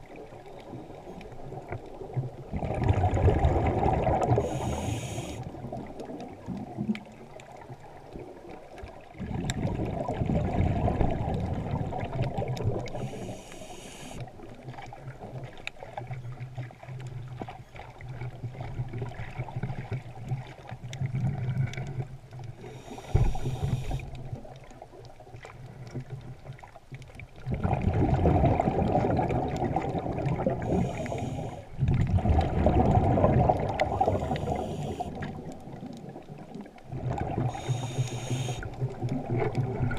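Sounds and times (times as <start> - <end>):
low rumbling bubbles underwater: 0.0 - 13.4, 14.2 - 39.9
scuba regulator breathing hiss: 4.4 - 5.5, 13.0 - 14.2, 22.6 - 24.2, 30.6 - 31.7, 33.9 - 35.3, 37.4 - 38.8.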